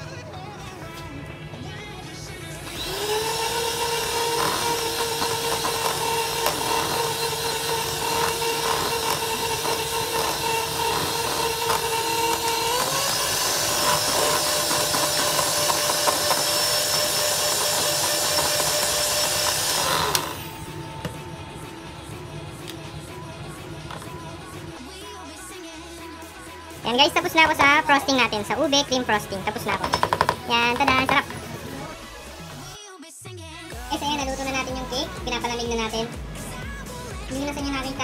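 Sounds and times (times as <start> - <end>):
electric mixer whining: 0.8 - 24.8, 26.8 - 32.8.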